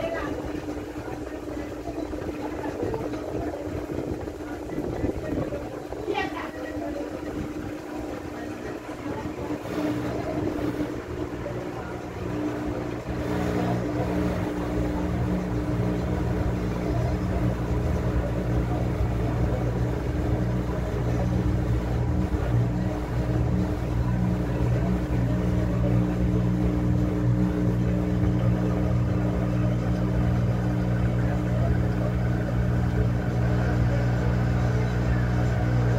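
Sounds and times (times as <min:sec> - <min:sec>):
washing machine humming: 0:00.0 - 0:35.9.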